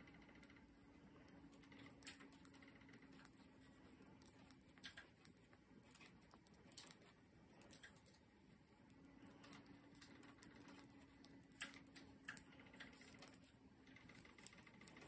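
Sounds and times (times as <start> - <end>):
faint steady hum: 0.0 - 15.0
knitting needles clicking: 0.0 - 15.0.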